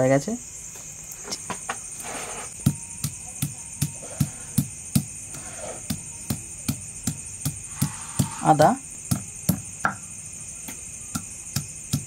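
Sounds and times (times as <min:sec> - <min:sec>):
crickets chirring: 0:00.0 - 0:12.0
stone pestle knocking on stone: 0:09.1 - 0:10.1.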